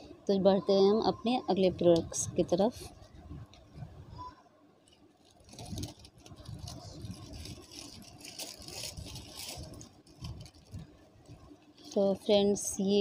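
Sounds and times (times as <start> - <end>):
packing paper crinkling: 4.8 - 12.2.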